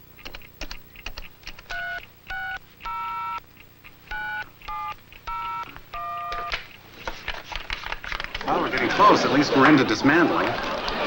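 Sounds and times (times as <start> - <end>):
touch-tone beeps: 4.1 - 6.5
keypad buttons clicking: 4.1 - 6.6.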